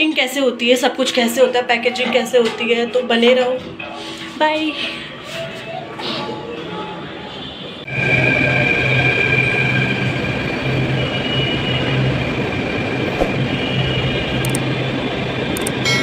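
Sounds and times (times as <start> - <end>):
train rumbling into station: 6.4 - 16.0
high train whine: 7.8 - 16.0.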